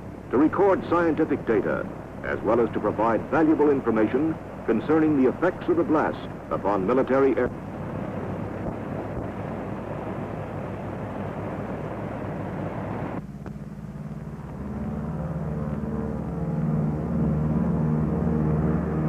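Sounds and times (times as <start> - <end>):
aircraft engine roar: 0.0 - 19.0.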